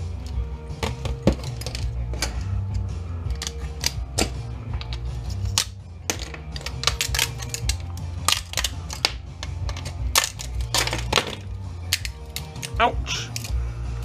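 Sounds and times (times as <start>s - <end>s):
background music: 0.0s - 14.0s
components snapping with sharp cracks: 3.3s - 13.6s.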